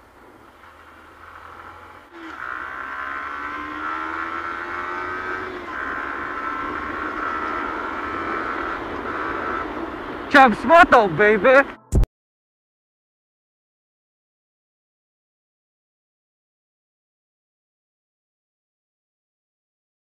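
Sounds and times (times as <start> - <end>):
motorcycle engine running: 0.3 - 11.4.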